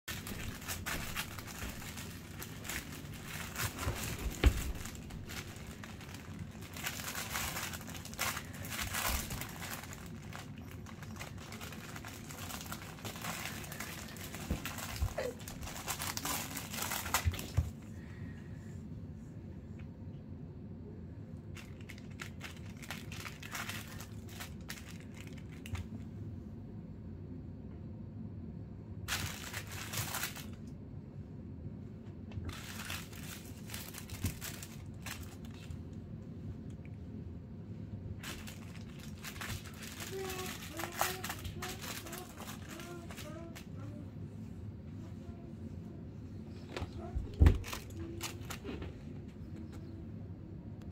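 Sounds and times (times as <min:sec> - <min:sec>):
cat toy crinkling: 0:00.1 - 0:17.8, 0:21.5 - 0:26.0, 0:29.1 - 0:30.7, 0:32.5 - 0:36.0, 0:38.1 - 0:44.0, 0:46.6 - 0:48.9
steady low hum: 0:00.1 - 0:50.9.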